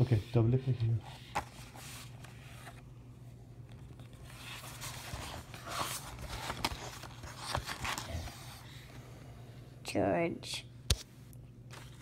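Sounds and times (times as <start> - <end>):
book pages turning: 0.8 - 2.9, 3.6 - 9.0, 11.7 - 12.0.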